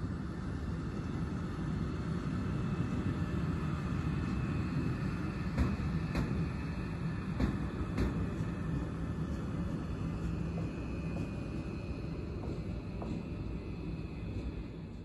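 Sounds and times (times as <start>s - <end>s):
electric locomotive rumbling: 0.0s - 15.0s.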